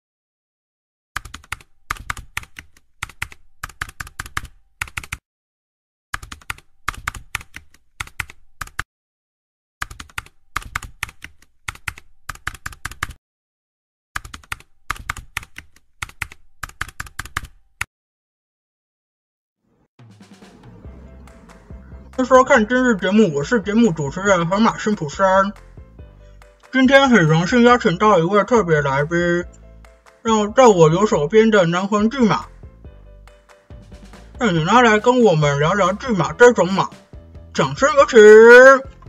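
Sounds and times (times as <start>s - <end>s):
keyboard typing clicks: 1.2s - 5.2s, 6.2s - 8.8s, 9.8s - 13.2s, 14.2s - 17.6s.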